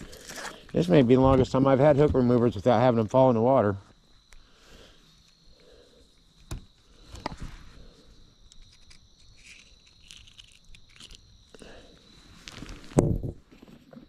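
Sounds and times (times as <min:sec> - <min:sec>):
insects trilling: 0:00.0 - 0:14.0.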